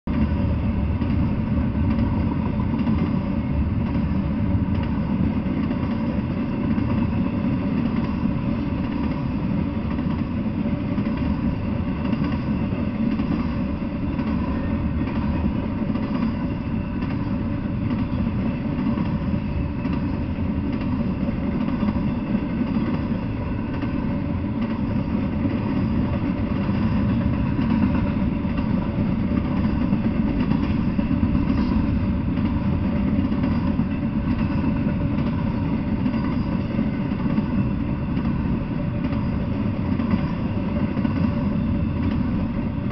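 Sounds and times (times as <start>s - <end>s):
freight train rumbling on rails: 0.0s - 42.9s.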